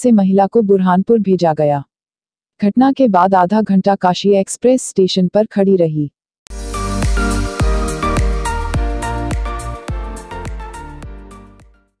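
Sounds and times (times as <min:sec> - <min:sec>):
background music with steady beat: 0:06.5 - 0:11.9.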